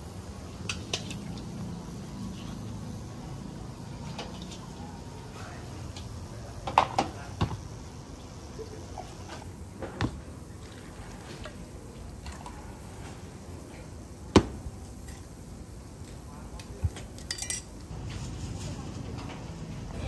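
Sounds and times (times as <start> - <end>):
metal utensils clinking: 17.1 - 17.8.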